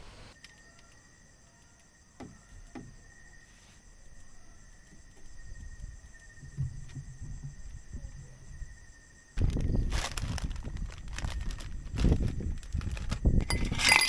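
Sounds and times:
night insects calling: 0.0 - 14.0
rustling and knocks of handling: 4.8 - 8.3.

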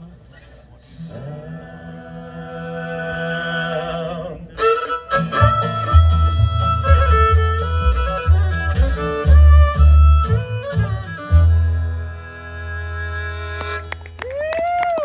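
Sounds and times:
fiddle-led bluegrass piece: 4.6 - 14.2.

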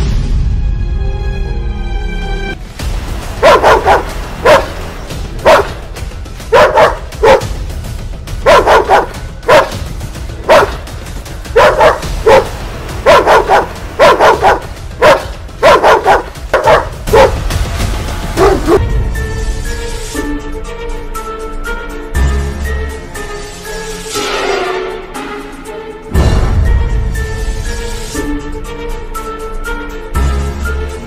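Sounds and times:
dog barking: 3.4 - 4.8, 5.4 - 5.8, 6.5 - 7.6, 8.4 - 9.8, 10.4 - 10.9, 11.5 - 17.4, 18.4 - 18.8.

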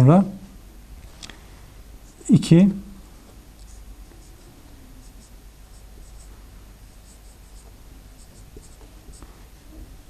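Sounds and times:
marker squeaking on whiteboard: 3.6 - 6.3, 6.9 - 9.2.

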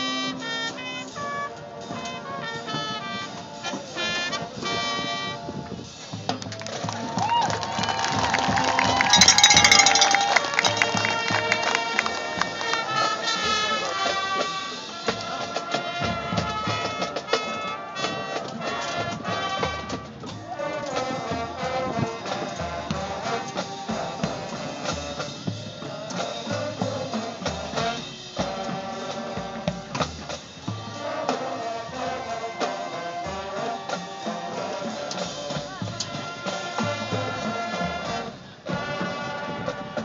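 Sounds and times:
drums: 0.0 - 40.0
marching band playing brass: 0.0 - 40.0.

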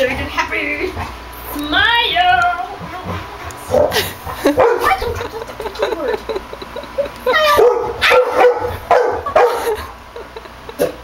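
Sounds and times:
dog barking: 3.7 - 5.2, 7.4 - 9.8.

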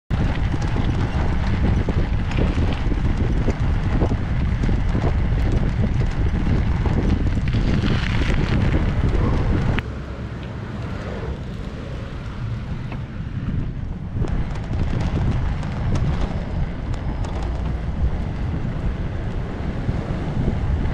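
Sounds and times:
bicycle and trailer rattling: 0.1 - 20.9
road rumble: 0.1 - 20.9
wind buffeting camera: 0.1 - 20.9.

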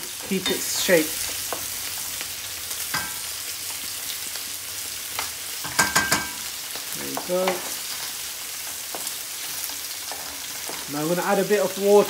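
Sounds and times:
oil sizzling: 0.0 - 12.0
wooden spoon stirring in pot: 7.0 - 12.0.

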